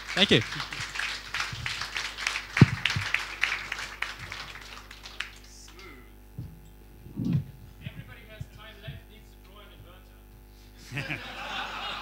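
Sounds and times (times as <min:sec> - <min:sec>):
audience applause: 0:00.0 - 0:05.8.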